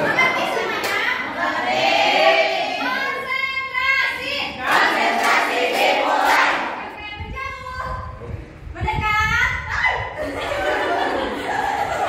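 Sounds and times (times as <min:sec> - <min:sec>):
young voices singing together: 0:00.0 - 0:07.3.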